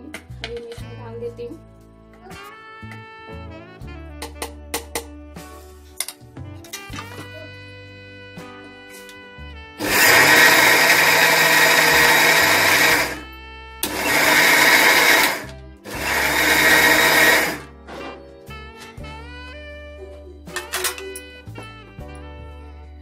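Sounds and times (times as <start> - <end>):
electric mixer grinder grinding: 9.8 - 17.7.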